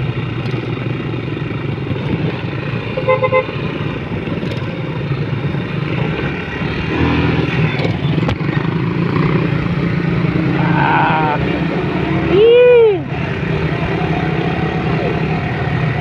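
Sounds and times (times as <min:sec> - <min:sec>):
motorcycle engine droning: 0:00.0 - 0:16.0.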